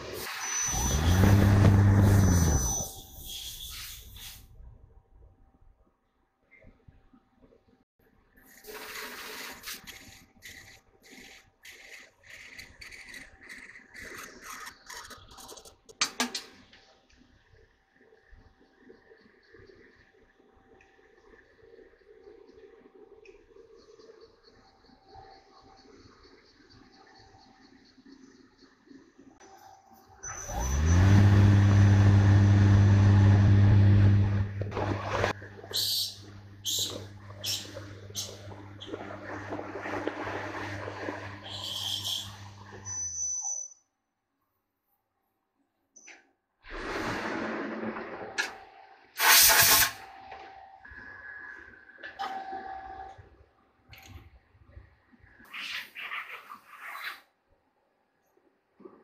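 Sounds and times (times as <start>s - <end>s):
lathe spindle whine and hum: 30.6s - 35.4s
lathe cutting metal hiss: 49.2s - 50.0s.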